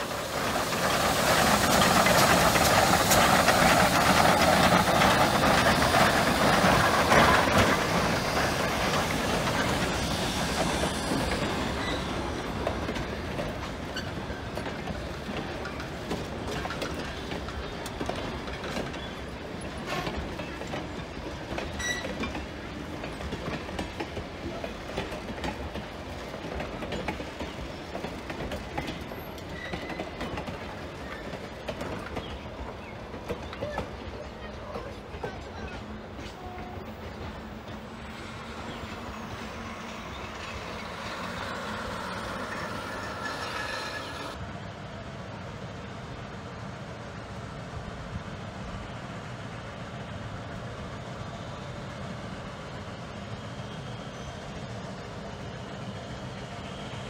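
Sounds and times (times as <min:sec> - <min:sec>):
train wheels clicking over rail joints: 0:00.0 - 0:44.4
steam locomotive passing: 0:00.0 - 0:57.0.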